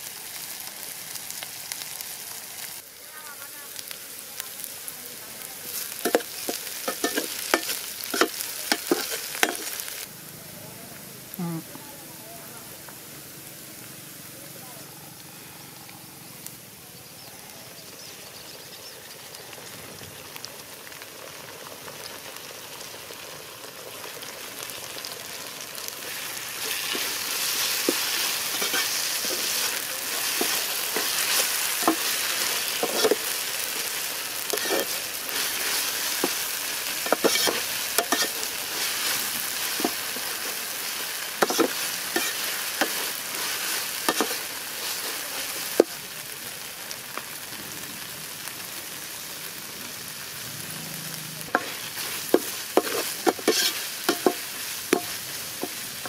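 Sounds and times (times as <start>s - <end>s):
vegetables sizzling in hot oil: 0.0s - 56.0s
metal ladle clinking and scraping pot: 6.1s - 9.7s, 52.8s - 54.4s.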